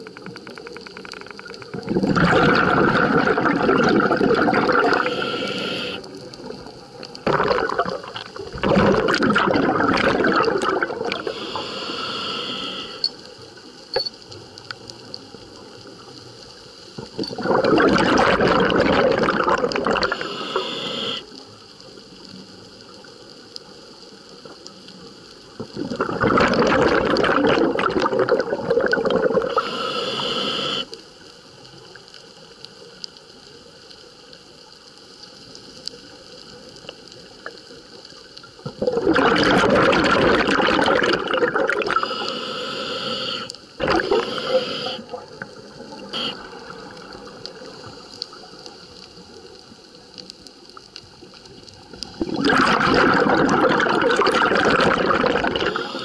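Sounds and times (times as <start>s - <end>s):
exhaled bubbles rushing: 1.6s - 5.7s, 6.4s - 11.4s, 17.1s - 20.4s, 25.6s - 29.6s, 38.7s - 42.2s, 43.8s - 47.9s, 52.0s - 56.0s
diver inhaling through regulator: 4.6s - 6.1s, 11.0s - 13.1s, 19.9s - 21.3s, 29.3s - 31.0s, 41.7s - 45.2s, 55.3s - 56.0s.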